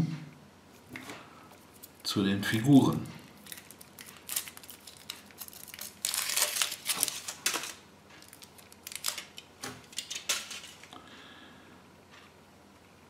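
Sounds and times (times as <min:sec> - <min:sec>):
foil wrapper crinkling: 0:01.7 - 0:10.9.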